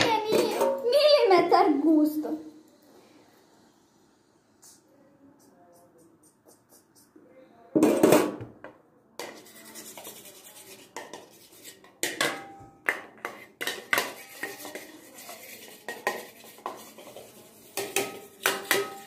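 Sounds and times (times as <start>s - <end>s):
spoon scraping a metal pan: 9.2s - 19.0s.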